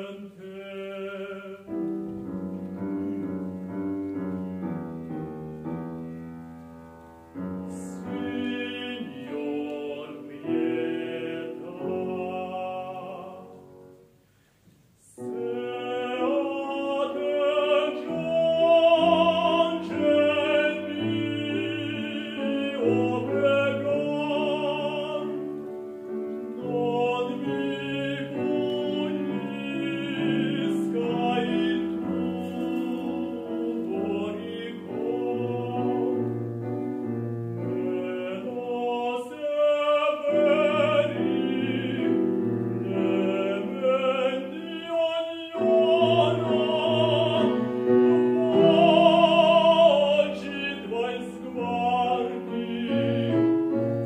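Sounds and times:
grand piano accompaniment: 0.0 - 54.0
baritone singing aria: 7.7 - 13.7, 15.0 - 25.7, 26.4 - 36.5, 37.6 - 54.0.

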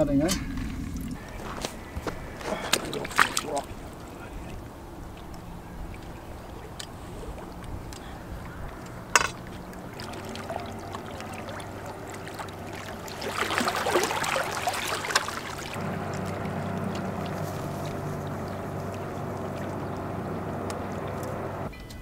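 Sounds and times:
deeper hum: 0.0 - 21.7
low engine drone: 0.0 - 22.0
rough rustling noise: 12.6 - 19.4.

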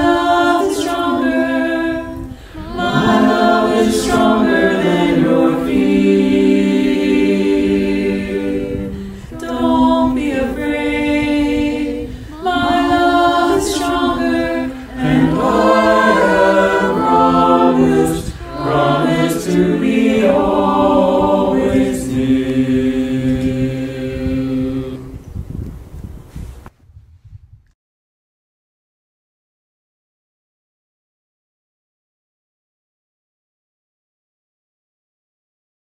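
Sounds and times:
choir singing a hymn a cappella: 0.0 - 25.2.

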